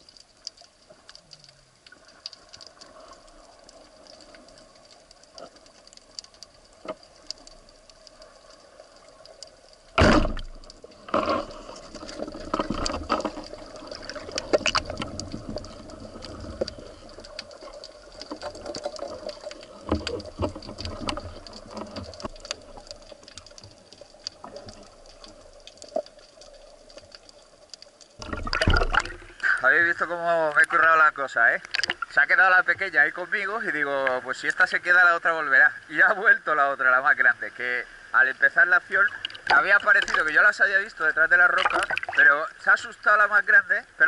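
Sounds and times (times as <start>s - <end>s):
fish struggling clicks and knocks: 0.0s - 30.9s, 31.6s - 32.3s, 38.9s - 40.6s, 41.3s - 42.2s
underwater hiss and clicking: 0.0s - 44.0s
deep underwater thump: 9.9s - 11.5s, 28.2s - 29.2s.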